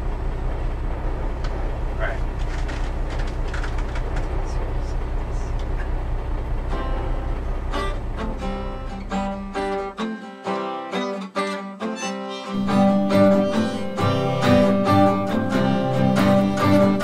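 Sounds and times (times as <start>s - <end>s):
guitars strumming chords: 6.6s - 17.0s.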